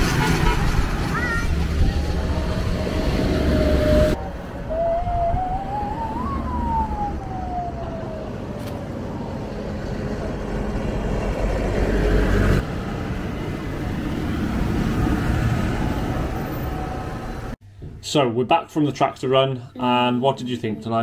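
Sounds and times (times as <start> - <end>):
diesel engines rumbling past: 0.0 - 17.6
siren wailing: 1.6 - 9.7.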